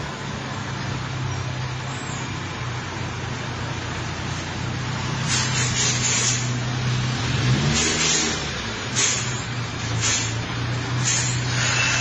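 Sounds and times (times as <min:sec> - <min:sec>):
vehicle engine running: 0:00.0 - 0:12.0
hiss: 0:05.2 - 0:06.6, 0:07.7 - 0:12.0.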